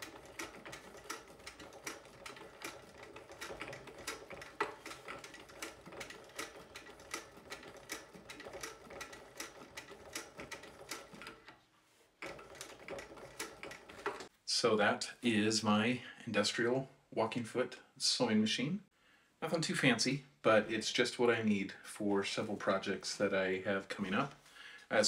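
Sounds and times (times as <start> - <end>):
sewing machine stitch clicks: 0.0 - 11.5, 12.2 - 14.3.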